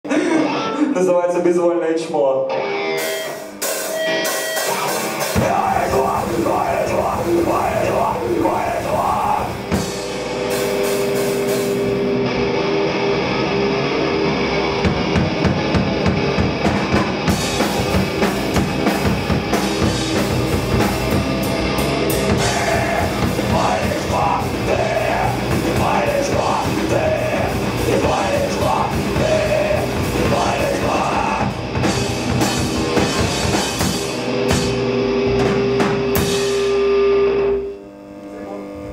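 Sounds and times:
electric guitar: 0.0 - 1.0, 2.4 - 38.9
drum kit with cymbals: 3.0 - 12.1, 14.9 - 37.0
person singing: 5.3 - 9.8, 22.3 - 31.6.

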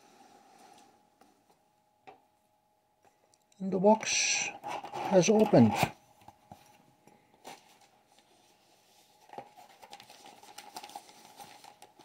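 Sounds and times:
packaging rustling and crinkling: 7.4 - 12.0.

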